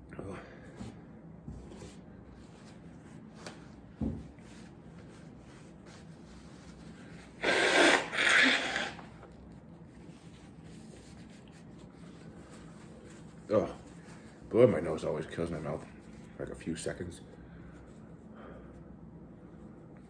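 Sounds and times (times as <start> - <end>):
tissue rustling: 1.6 - 7.4, 9.2 - 16.3
man blowing his nose: 7.3 - 9.2.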